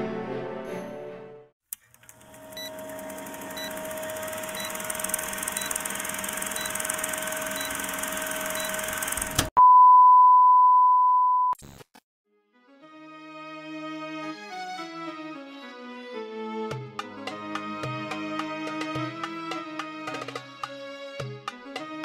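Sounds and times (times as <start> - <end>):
soft music: 12.3 - 22.0.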